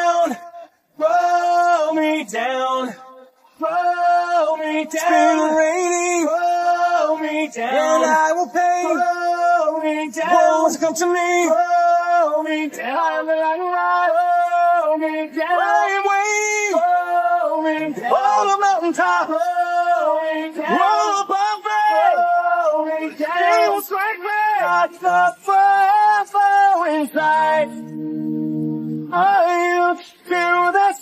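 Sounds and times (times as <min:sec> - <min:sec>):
man singing unaccompanied: 0:00.0 - 0:31.0.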